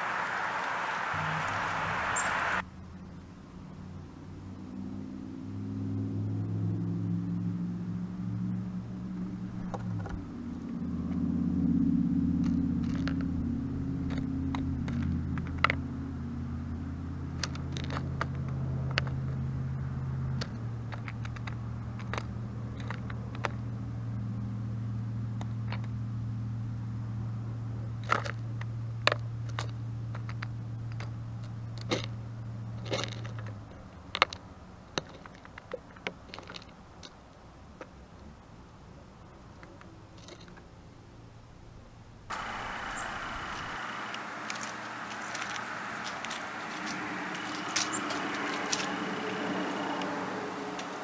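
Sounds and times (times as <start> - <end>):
low engine drone: 0.0 - 2.9, 4.4 - 33.5, 42.2 - 51.0.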